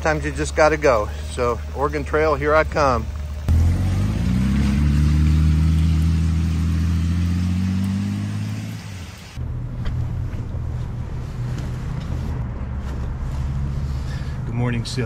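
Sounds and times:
rain hissing: 0:00.3 - 0:09.4
motorcycle engine pulling away: 0:00.4 - 0:09.4
low rumble: 0:09.3 - 0:15.0
cloth rustling over microphone: 0:09.7 - 0:14.2.

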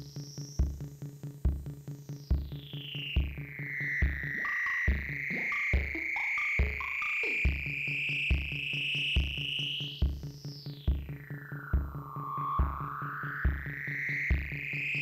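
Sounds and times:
drum machine kick drum: 0:00.0 - 0:14.8
high synth tone sweeping down: 0:02.5 - 0:09.9, 0:11.0 - 0:15.0
gliding synth bass notes: 0:10.7 - 0:15.0.

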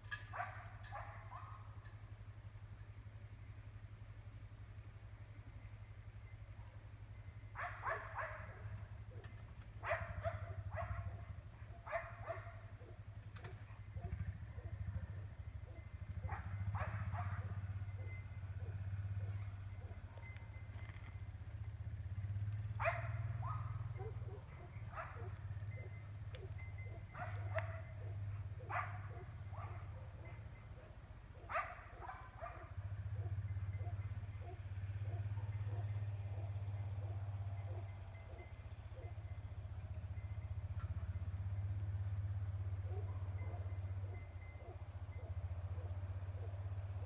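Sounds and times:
dogs barking: 0:00.1 - 0:01.8, 0:07.5 - 0:20.6, 0:22.6 - 0:39.3, 0:42.0 - 0:47.0.

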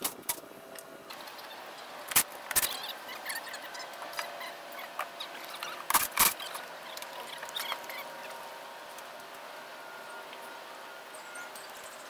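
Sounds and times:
small clicks and squeaks: 0:01.1 - 0:09.4.

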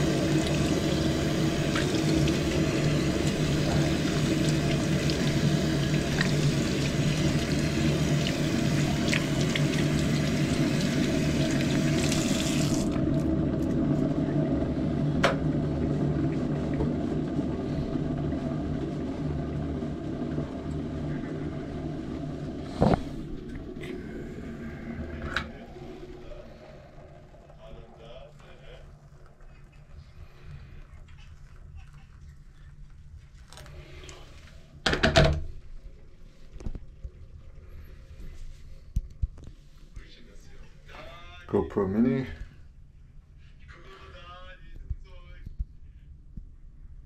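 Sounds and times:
tap running: 0:00.0 - 0:14.2, 0:15.2 - 0:19.6
steady low hum: 0:00.0 - 0:47.0.

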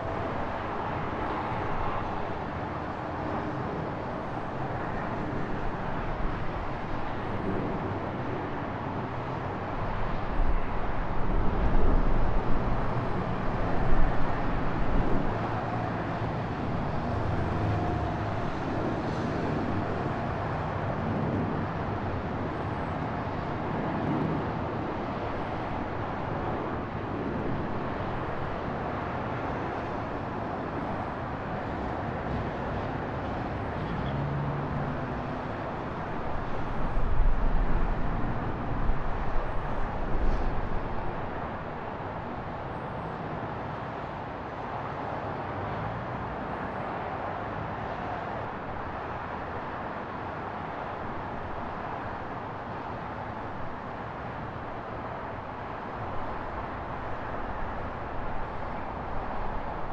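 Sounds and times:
wind rumbling on microphone: 0:00.0 - 0:34.0, 0:34.6 - 0:43.3
city traffic: 0:00.0 - 0:59.9.

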